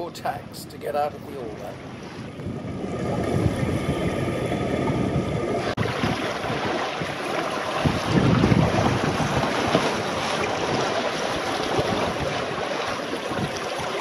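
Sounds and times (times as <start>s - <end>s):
water rushing along hull: 0.0s - 14.0s
wind buffeting microphone: 0.0s - 14.0s.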